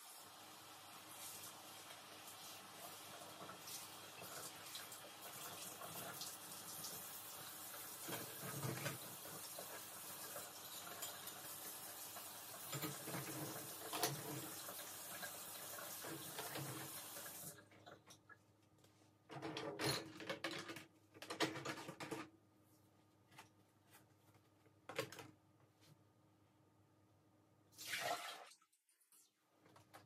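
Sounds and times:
kitchen faucet running into sink: 0:01.2 - 0:17.6.

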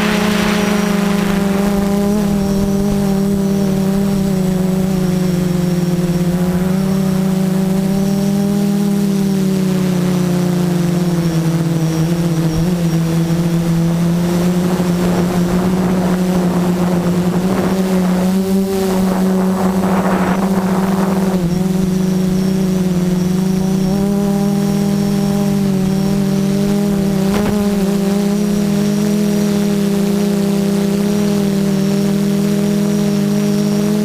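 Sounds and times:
rough rushing noise: 0:00.0 - 0:08.1, 0:13.1 - 0:30.4
drone motors buzzing: 0:00.0 - 0:34.0.

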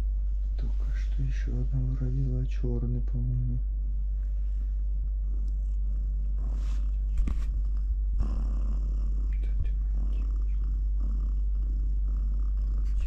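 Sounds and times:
cat purring: 0:00.0 - 0:13.0
soft bedding rustles: 0:06.4 - 0:07.7.

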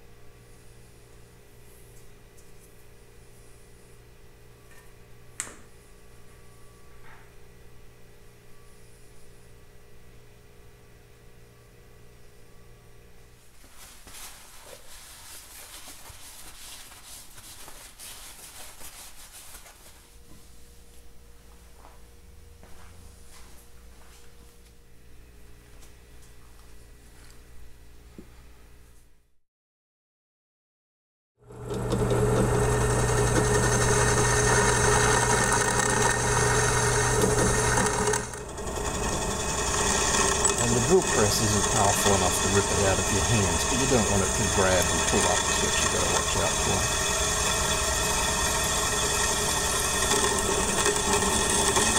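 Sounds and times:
paper towel wiping metal: 0:14.0 - 0:19.9
drill press boring into aluminium: 0:31.7 - 0:51.9.

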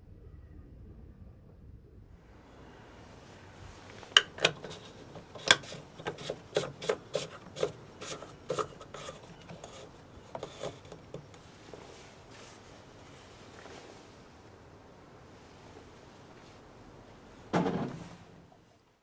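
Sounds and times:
plastic cap screwing clicks: 0:04.1 - 0:11.4.

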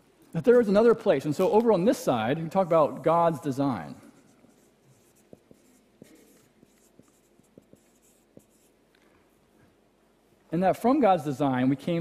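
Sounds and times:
marker scratching on whiteboard: 0:04.0 - 0:08.9.

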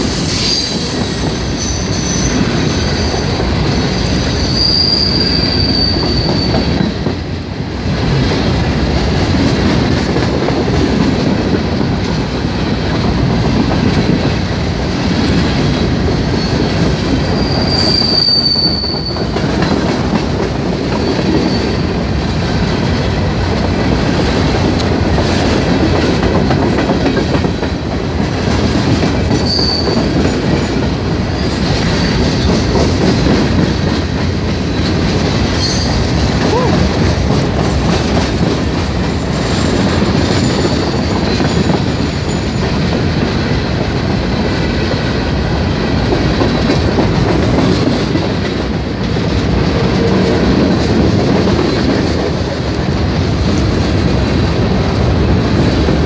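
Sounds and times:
wheel squeals: 0:00.0 - 0:06.9, 0:16.2 - 0:19.4, 0:21.0 - 0:22.0, 0:29.3 - 0:30.4, 0:39.5 - 0:42.8
train wheels rumbling and clattering: 0:00.0 - 0:56.0.

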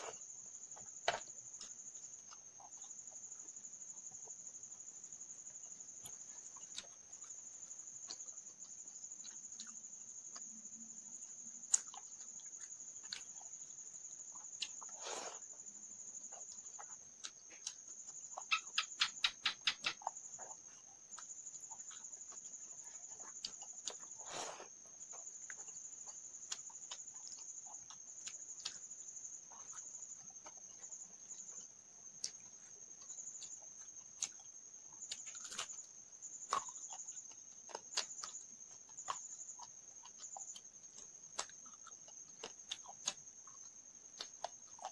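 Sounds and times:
cricket trill: 0:00.0 - 0:44.9
eating by hand: 0:00.0 - 0:44.9
mouth clicks and smacks: 0:18.4 - 0:20.6.

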